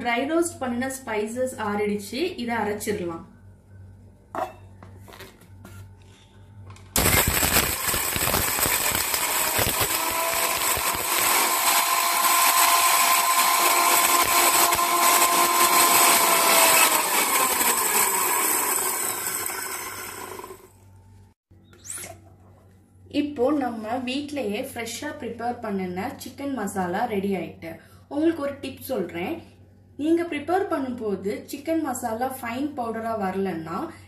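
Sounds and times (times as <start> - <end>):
mixer grinder motor whine: 7.0 - 20.8.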